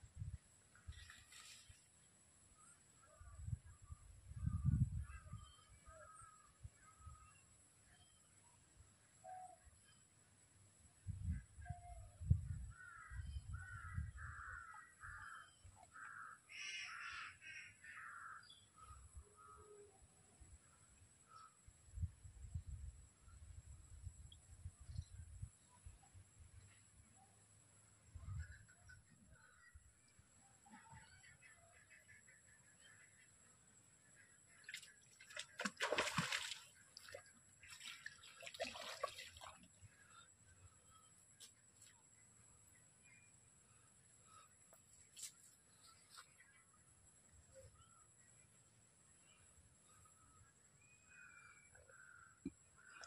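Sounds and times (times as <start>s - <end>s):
pond water splashing: 0.8s - 2.2s, 34.5s - 40.3s.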